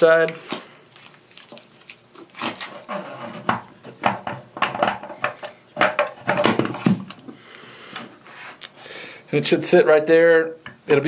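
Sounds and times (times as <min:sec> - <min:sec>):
faucet knocking and rattling: 0:03.4 - 0:06.7.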